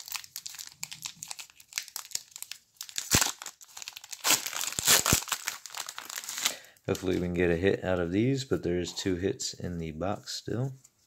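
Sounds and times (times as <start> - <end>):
loud foil crackling: 0.0 - 7.0
foil wrapper crinkling: 0.0 - 7.2.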